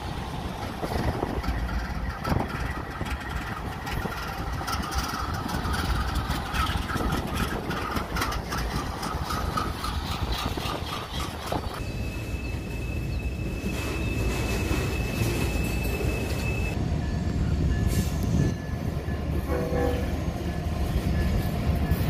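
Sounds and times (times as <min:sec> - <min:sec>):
train wheels clicking on rails: 0:00.0 - 0:12.7
diesel locomotive engines rumbling: 0:00.0 - 0:22.0.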